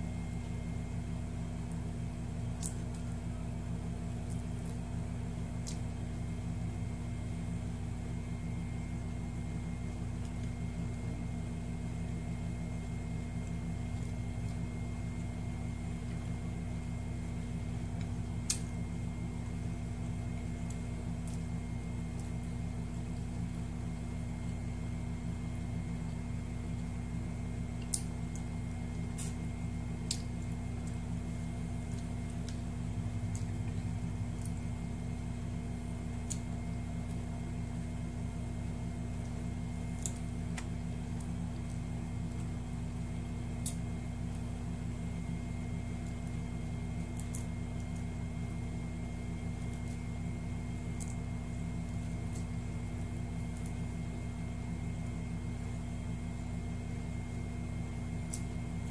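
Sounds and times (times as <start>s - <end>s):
low mechanical hum: 0.0s - 58.9s
person eating by hand: 1.4s - 6.1s, 27.7s - 35.2s.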